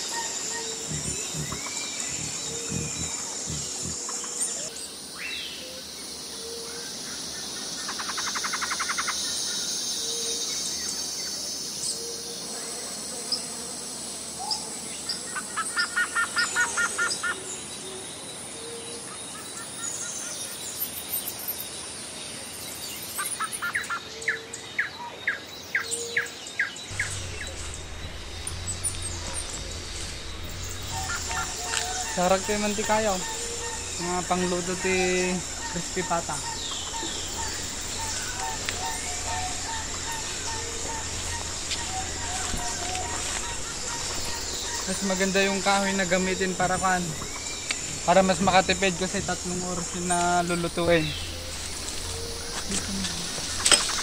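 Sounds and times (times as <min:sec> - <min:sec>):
birds chirping: 0:00.0 - 0:12.8, 0:25.3 - 0:54.0
insects hissing: 0:00.0 - 0:23.9, 0:26.8 - 0:54.0
low rumble: 0:26.9 - 0:54.0.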